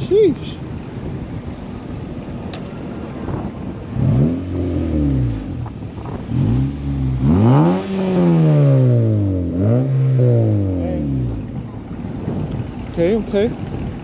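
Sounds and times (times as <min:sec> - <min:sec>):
car engine revving: 0:02.6 - 0:12.8.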